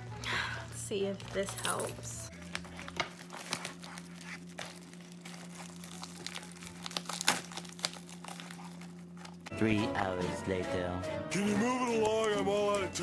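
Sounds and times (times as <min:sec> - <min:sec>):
plastic bag crinkling: 0:01.0 - 0:09.5.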